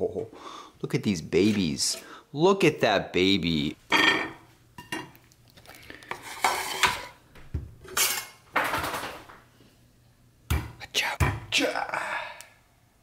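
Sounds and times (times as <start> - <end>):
cutlery and plate clinking: 7.9 - 9.0.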